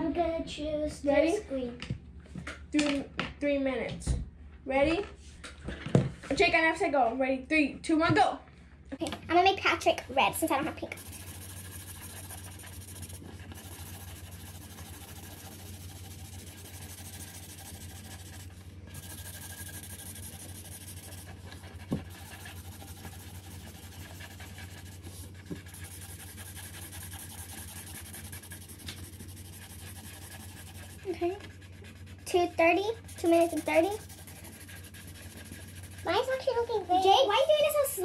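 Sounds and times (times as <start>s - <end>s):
markers scribbling on paper: 10.2s - 38.0s.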